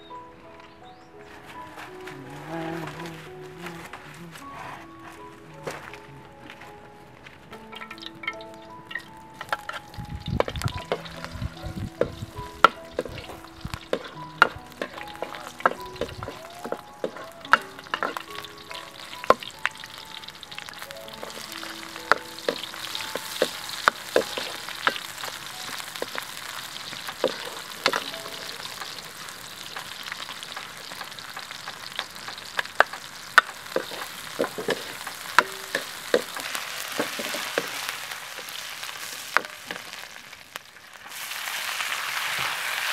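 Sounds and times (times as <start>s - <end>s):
wooden spatula scraping wok: 1.2s - 7.4s, 20.8s - 40.3s
garlic and onions sizzling in oil: 1.2s - 42.9s.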